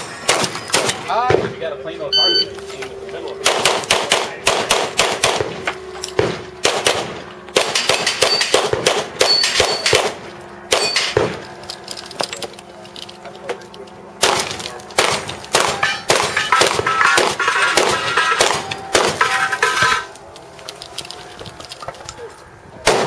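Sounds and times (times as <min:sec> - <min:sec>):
steel targets ringing: 0:02.1 - 0:02.5, 0:07.8 - 0:08.6, 0:09.2 - 0:10.0, 0:10.7 - 0:11.4, 0:15.1 - 0:20.2
rapid gunshots: 0:03.4 - 0:05.6, 0:06.2 - 0:11.4, 0:14.2 - 0:19.3.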